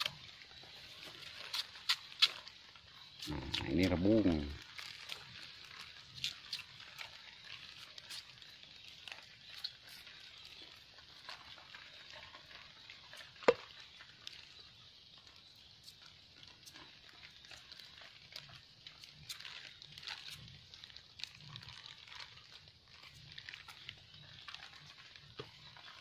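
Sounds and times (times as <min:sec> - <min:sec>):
knife cutting bamboo in leaf litter: 0:01.1 - 0:02.5.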